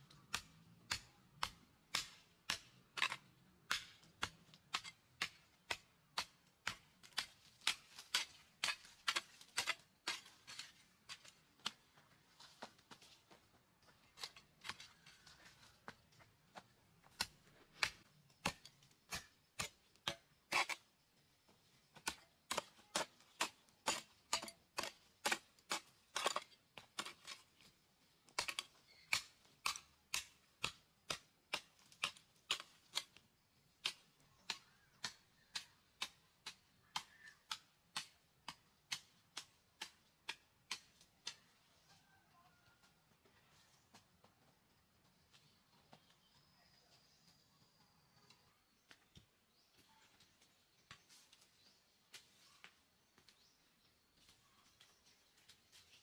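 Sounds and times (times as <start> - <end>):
hoe chopping stony dirt: 0.1 - 12.0, 16.6 - 21.0, 21.9 - 41.5.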